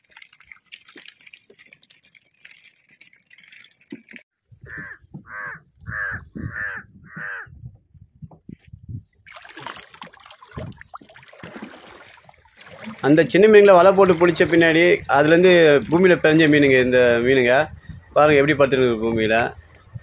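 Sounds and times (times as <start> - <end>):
water splashing: 0.0 - 5.9, 9.2 - 17.6
crow cawing: 4.7 - 7.5.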